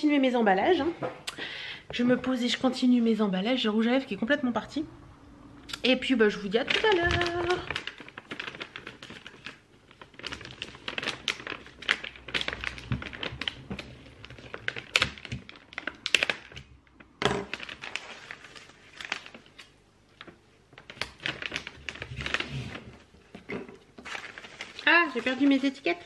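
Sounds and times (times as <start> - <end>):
paper bag rustling and crinkling: 6.3 - 16.6, 17.2 - 26.0.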